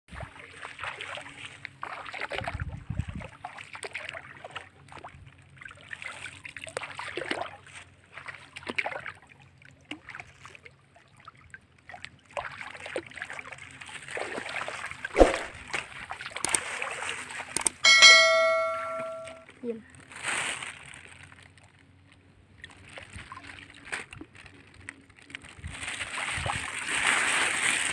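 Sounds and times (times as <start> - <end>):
water sloshing and splashing: 0.1 - 19.1, 20.1 - 27.9
sharp knock: 15.2 - 15.6.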